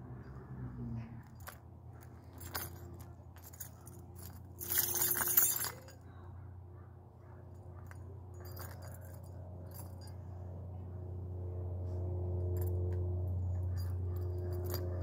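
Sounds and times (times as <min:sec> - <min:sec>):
airplane drone overhead: 0:00.0 - 0:15.0
metal keys jangling: 0:01.1 - 0:06.2, 0:07.6 - 0:10.4, 0:12.6 - 0:15.0.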